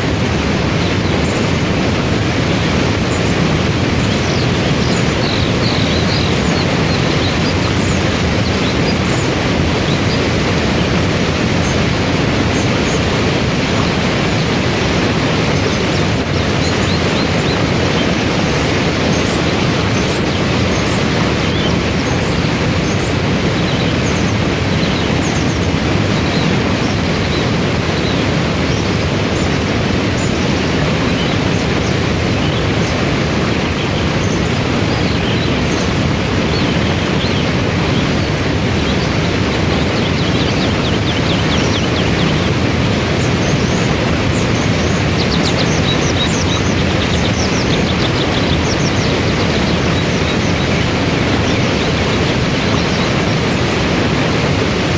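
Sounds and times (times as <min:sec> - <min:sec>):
waterfall and rapids rushing: 0:00.0 - 0:54.9.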